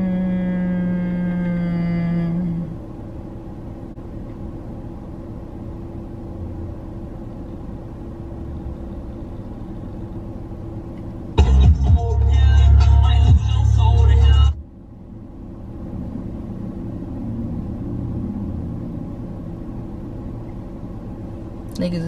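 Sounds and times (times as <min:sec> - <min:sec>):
car low rumble: 0:00.0 - 0:22.0
constant hum: 0:00.0 - 0:22.0
loud low-pitched tone: 0:11.4 - 0:14.7.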